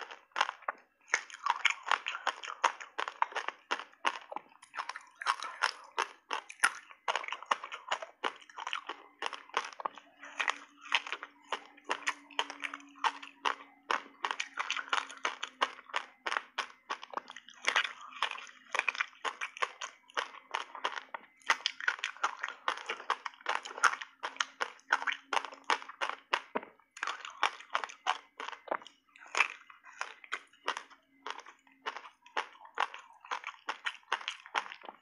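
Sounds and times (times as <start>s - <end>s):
crunching ice: 0.0s - 35.0s.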